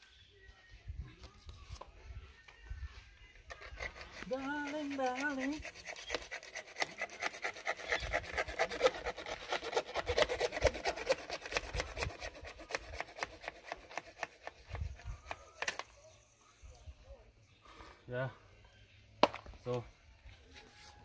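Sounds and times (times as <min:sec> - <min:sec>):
hand tool scraping concrete: 0:03.5 - 0:14.6.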